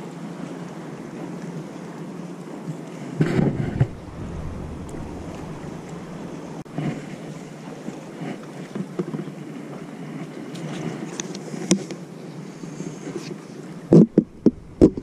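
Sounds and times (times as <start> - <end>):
sea water lapping: 0.3 - 15.0
wind on microphone: 3.2 - 8.2, 14.0 - 15.0.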